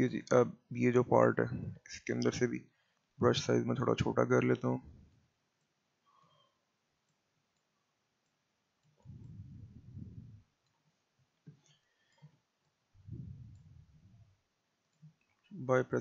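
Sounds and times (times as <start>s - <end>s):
low muffled noise: 0.0s - 2.6s, 3.2s - 5.1s, 9.0s - 10.5s, 13.0s - 14.4s, 15.6s - 16.0s.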